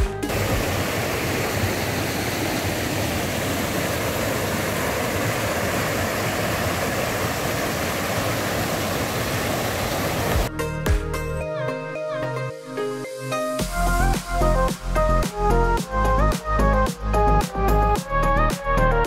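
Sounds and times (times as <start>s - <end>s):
stream rushing over rocks: 0.0s - 10.5s.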